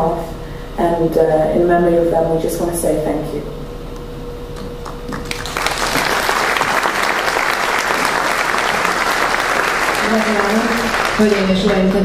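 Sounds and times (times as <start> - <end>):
audience applauding: 4.8 - 12.0.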